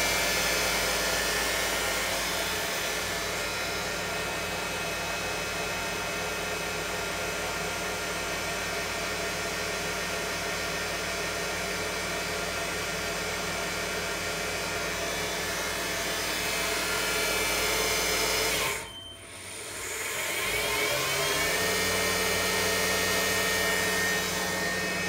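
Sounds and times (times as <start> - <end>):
mill spindle hum and whine: 0.0 - 25.0.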